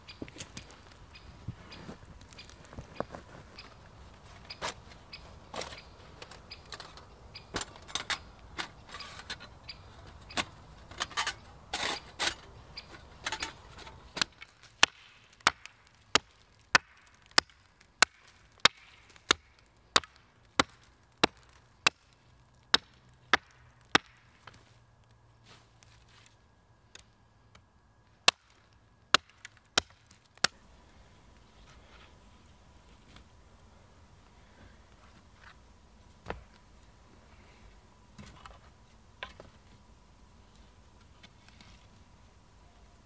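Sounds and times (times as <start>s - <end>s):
hatchet chopping a stick: 14.2s - 22.1s, 22.7s - 24.2s, 28.2s - 30.6s.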